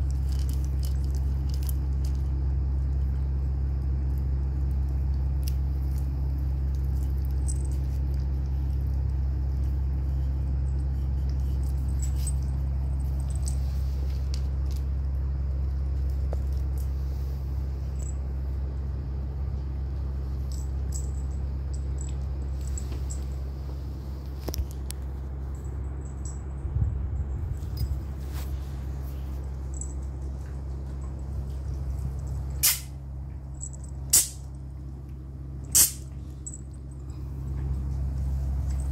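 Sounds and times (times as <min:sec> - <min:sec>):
puppies crunching kibble in metal bowl: 0:00.0 - 0:17.1
low hum: 0:00.0 - 0:38.9.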